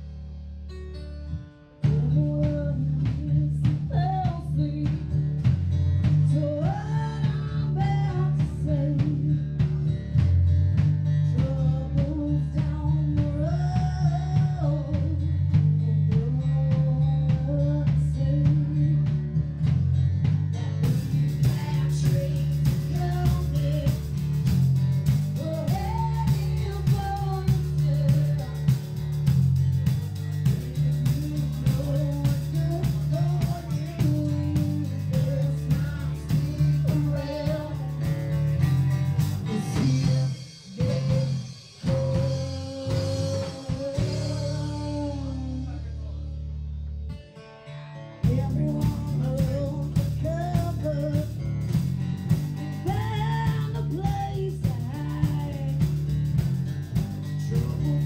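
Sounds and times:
drum kit steady beat: 0:01.8 - 0:45.8, 0:48.2 - 0:58.0
live band playing: 0:19.6 - 0:45.8.

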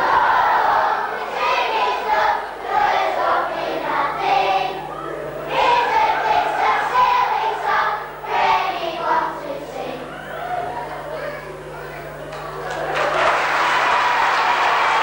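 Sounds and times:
children singing together: 0:00.0 - 0:11.4
faint low hum: 0:00.0 - 0:15.0.

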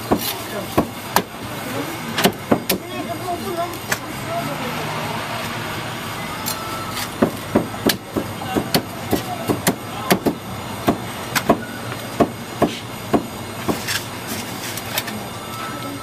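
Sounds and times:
cleaver chopping meat on wood: 0:00.0 - 0:01.3, 0:02.2 - 0:02.8, 0:07.2 - 0:11.6, 0:12.2 - 0:13.8.

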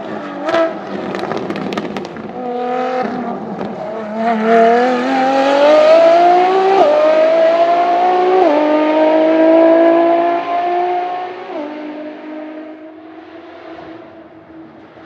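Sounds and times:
sports car engine accelerating: 0:00.0 - 0:15.0.

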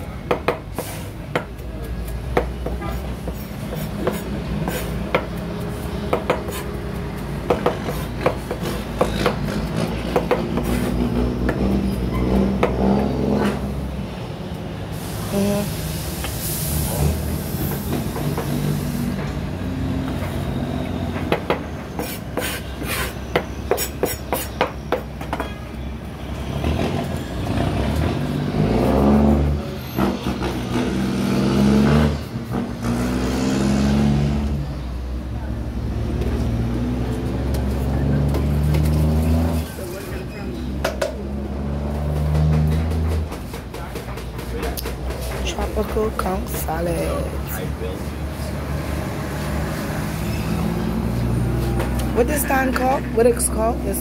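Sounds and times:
hiss: 0:14.9 - 0:19.2.

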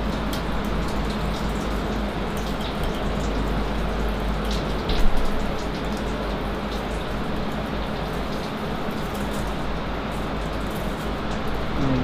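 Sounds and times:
coolant splashing: 0:00.0 - 0:12.0
steady machine hum: 0:05.6 - 0:12.0.

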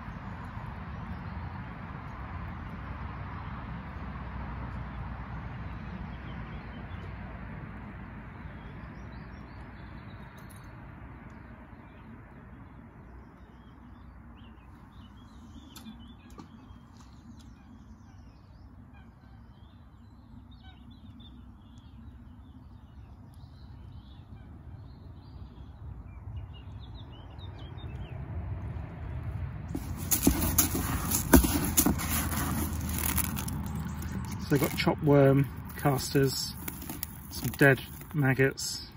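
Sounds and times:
small birds chirping and singing: 0:11.3 - 0:28.2.

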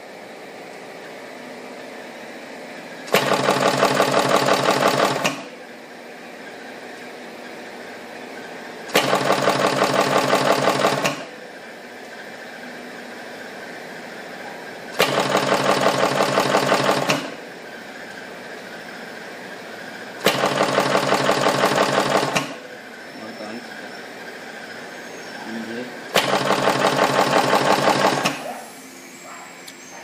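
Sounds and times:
rapid mechanical chattering: 0:03.1 - 0:05.4, 0:08.9 - 0:11.2, 0:15.0 - 0:17.4, 0:20.2 - 0:22.6, 0:26.1 - 0:28.4.

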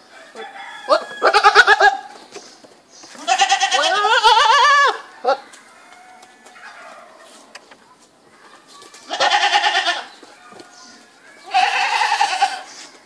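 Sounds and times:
goat bleating: 0:00.9 - 0:02.1, 0:03.2 - 0:05.4, 0:09.1 - 0:10.1, 0:11.4 - 0:12.7.

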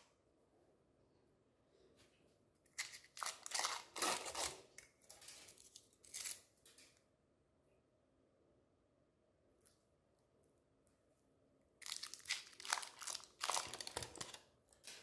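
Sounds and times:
packaging crinkling and tearing: 0:02.7 - 0:06.5, 0:11.8 - 0:15.0.

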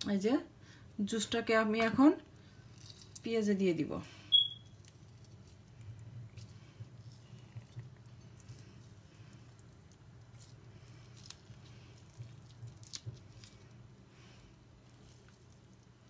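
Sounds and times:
low steady hum: 0:00.0 - 0:16.0
lime squishing and clicks: 0:02.6 - 0:03.3, 0:04.3 - 0:16.0.

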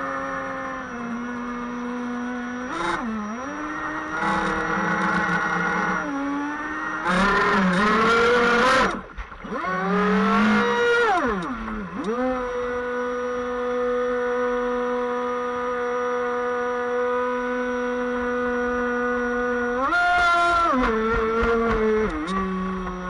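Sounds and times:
model boat motor whining: 0:00.0 - 0:23.0.

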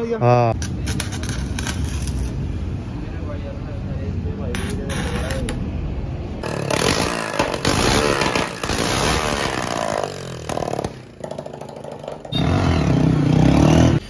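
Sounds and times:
motorcycle engine revving: 0:06.4 - 0:14.0.

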